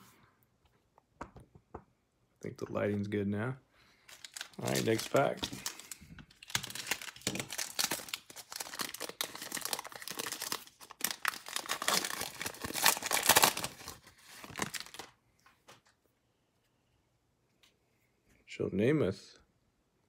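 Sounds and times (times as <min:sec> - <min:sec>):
card pack wrapper crinkling and tearing: 0:04.0 - 0:15.2.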